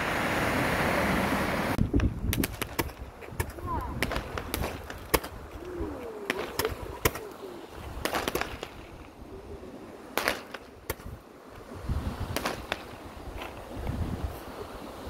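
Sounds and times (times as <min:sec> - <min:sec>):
surf rumbling: 0:00.0 - 0:15.0
fireworks bangs: 0:02.0 - 0:05.6, 0:06.2 - 0:09.1, 0:10.1 - 0:11.2, 0:12.3 - 0:13.1.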